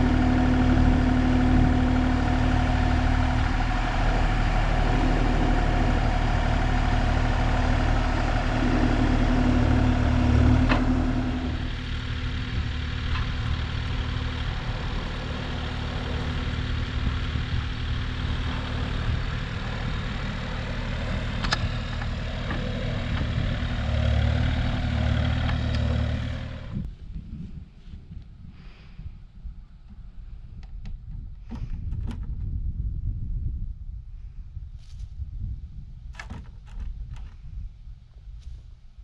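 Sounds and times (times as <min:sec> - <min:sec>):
excavator diesel engine running: 0:00.0 - 0:26.9.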